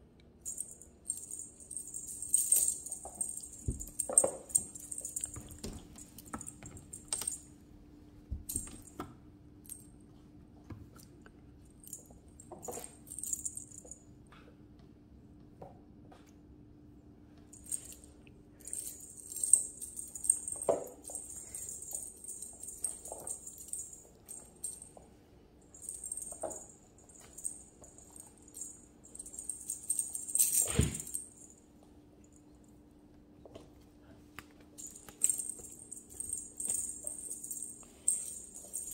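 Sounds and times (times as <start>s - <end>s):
small bells jingling: 0.5s - 7.4s, 17.6s - 18.0s, 18.6s - 25.0s, 25.7s - 31.6s, 34.8s - 38.9s
thump: 30.6s - 31.1s.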